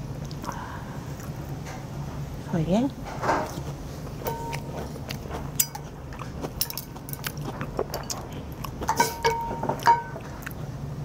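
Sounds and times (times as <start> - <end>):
metal ladle clinking on bowl: 4.2 - 4.7.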